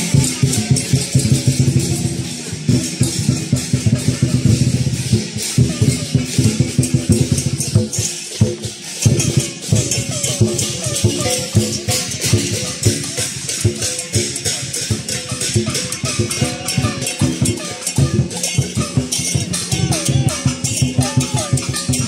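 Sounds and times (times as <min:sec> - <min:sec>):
cymbals clashing: 0:00.0 - 0:22.0
large drum beaten fast: 0:00.0 - 0:22.0
gongs ringing: 0:09.2 - 0:22.0.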